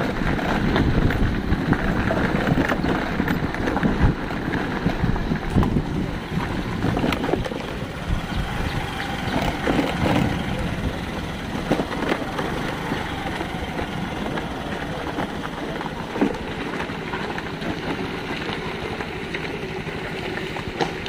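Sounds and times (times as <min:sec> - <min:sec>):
steady low rumble: 0:00.0 - 0:21.0
wind buffeting microphone: 0:00.0 - 0:21.0.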